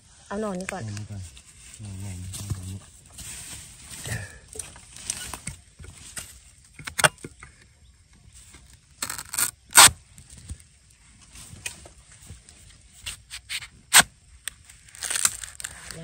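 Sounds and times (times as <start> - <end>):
rustling in dry bamboo litter: 0.0 - 6.8, 8.1 - 16.0.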